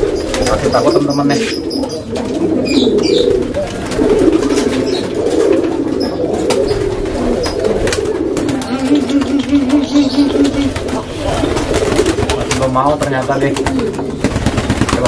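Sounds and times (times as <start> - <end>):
pigeons cooing: 0.0 - 15.0.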